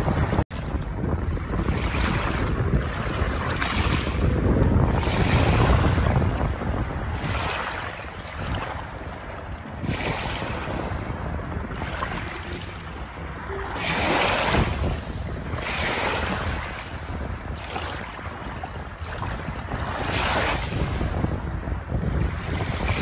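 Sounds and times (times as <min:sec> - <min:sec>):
wind rumble on microphone: 0:00.0 - 0:23.0
small waves washing over pebbles: 0:07.1 - 0:12.8, 0:13.8 - 0:21.2.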